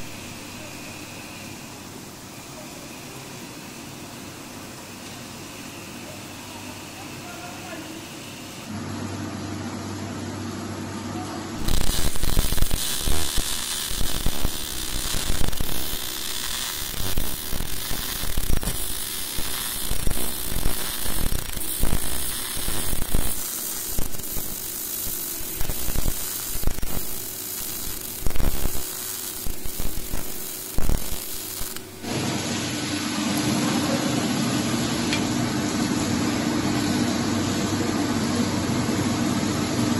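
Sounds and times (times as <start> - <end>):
welding arc crackling: 0.0 - 1.7, 5.8 - 8.7, 11.6 - 32.4.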